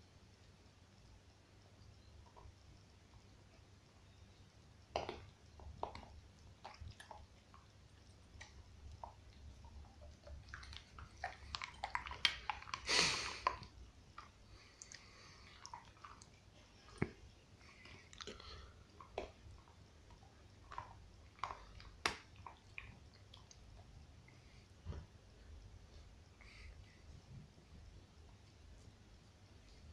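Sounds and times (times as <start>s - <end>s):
dog gnawing on a bone: 5.0s - 23.5s.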